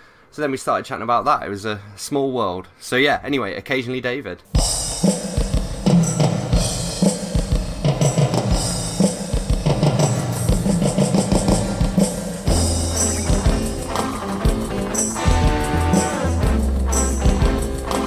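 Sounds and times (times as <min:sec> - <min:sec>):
band song with drums and bass: 0:04.6 - 0:18.0.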